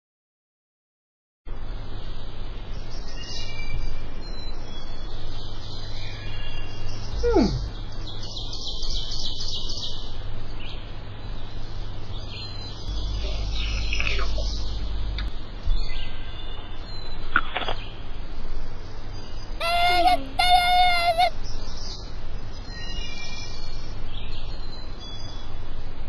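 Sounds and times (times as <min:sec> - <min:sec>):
steady low hum: 0:01.5 - 0:26.0
birds chirping and singing: 0:02.7 - 0:18.0, 0:19.5 - 0:24.8
fast falling pitch glide: 0:19.6 - 0:21.3.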